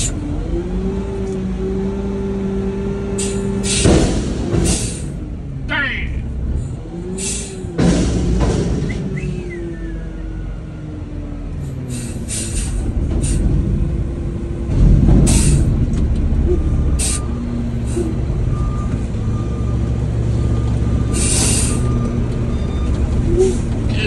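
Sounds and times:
garbage truck engine running: 0.0 - 24.0
air brake hisses: 3.2 - 4.0, 4.6 - 5.2, 7.2 - 7.7, 11.7 - 13.6, 15.3 - 15.7, 17.0 - 18.2, 21.1 - 22.0.

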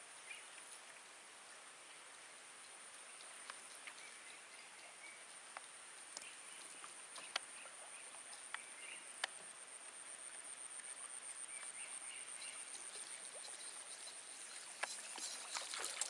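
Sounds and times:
high insect drone: 6.2 - 16.0.

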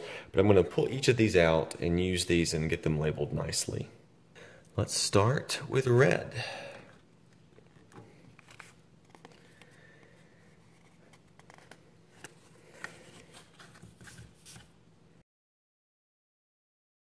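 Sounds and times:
paper rustling: 7.6 - 9.8, 10.4 - 14.8.

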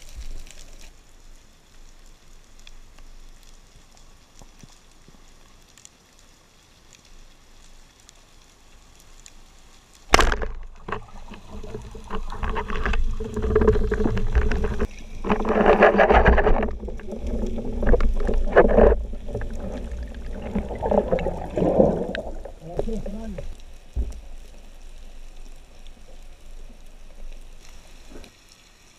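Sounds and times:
speargun firing crack: 10.1 - 11.0
knocks underwater: 10.1 - 24.4
churning water and bubbling: 10.1 - 24.8
underwater hiss: 16.8 - 28.9.

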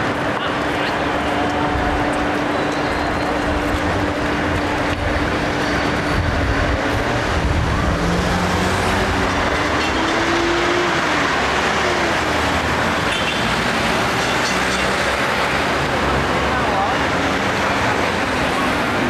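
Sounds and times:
electric tram rumbling on rails: 0.0 - 19.0.

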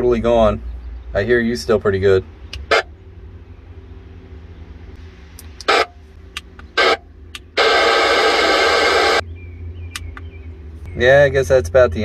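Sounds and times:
low steady hum: 0.0 - 12.0
radio static crackles: 5.3 - 6.0, 6.6 - 9.2
loud radio hiss: 6.8 - 7.0, 7.6 - 9.2.

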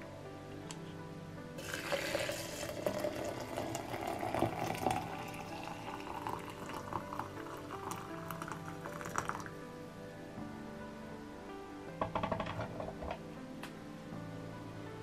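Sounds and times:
background music: 0.0 - 15.0
water pouring into glass jug: 1.6 - 9.6.

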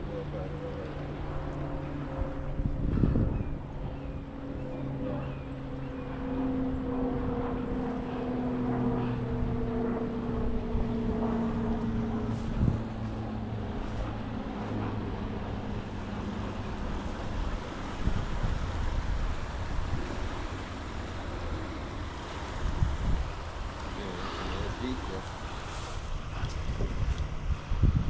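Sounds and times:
engine drone: 0.0 - 28.0
wind: 0.0 - 28.0
rushing water: 12.8 - 28.0.

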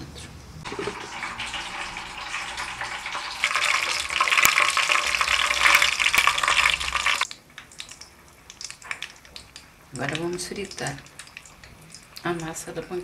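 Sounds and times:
batter sizzling in frying pan: 0.6 - 12.9.

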